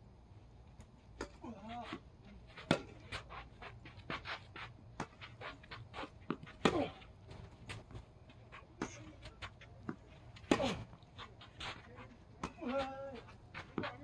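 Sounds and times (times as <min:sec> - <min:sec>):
tennis racket striking ball: 0:01.2 - 0:07.0, 0:10.3 - 0:10.9
tennis ball bouncing on hard court: 0:02.6 - 0:03.2, 0:12.4 - 0:14.0.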